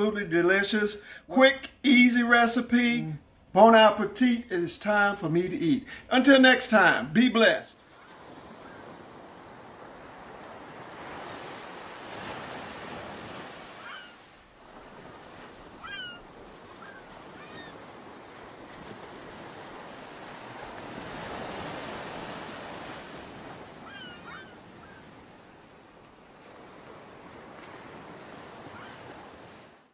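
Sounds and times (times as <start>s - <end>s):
ocean surf breaking on beach: 7.8s - 29.9s.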